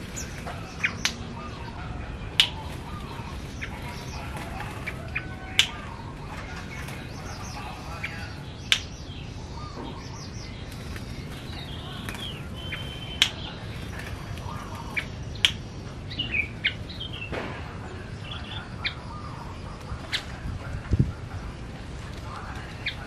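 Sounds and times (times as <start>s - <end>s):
wings fluttering: 0.0s - 1.4s, 2.3s - 8.8s, 10.6s - 15.7s.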